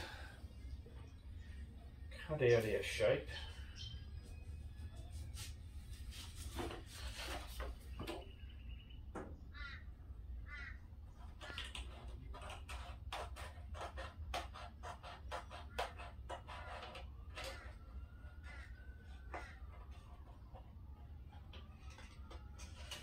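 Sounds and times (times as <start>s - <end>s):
bird calls: 7.7s - 10.8s.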